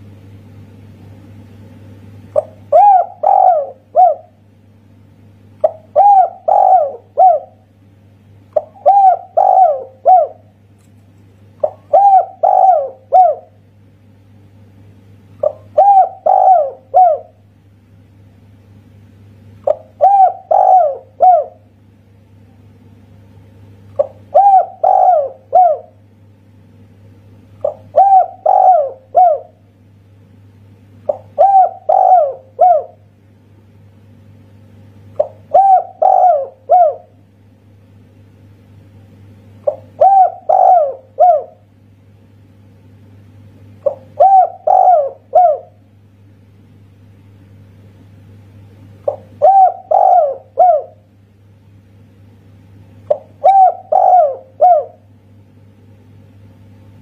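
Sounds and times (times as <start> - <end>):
faint low hum: 0.0 - 57.0
dove cooing: 2.3 - 4.4, 5.6 - 7.7, 8.6 - 10.5, 11.6 - 13.6, 15.4 - 17.4, 19.6 - 21.7, 23.9 - 26.0, 27.6 - 29.6, 31.0 - 33.0, 35.2 - 37.2, 39.6 - 41.7, 43.8 - 45.8, 49.0 - 51.1, 53.1 - 55.1.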